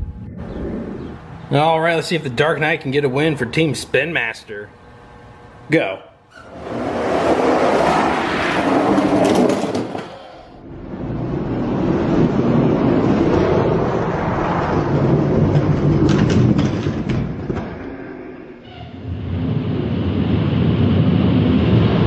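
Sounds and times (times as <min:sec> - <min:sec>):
toy trucks rolling on plastic track: 0:08.6 - 0:10.2, 0:14.9 - 0:17.6.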